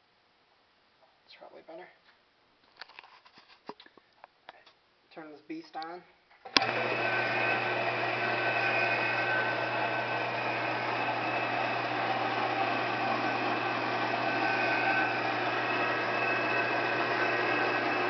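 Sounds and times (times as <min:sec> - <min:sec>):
milling machine motor humming: 0:06.5 - 0:18.0.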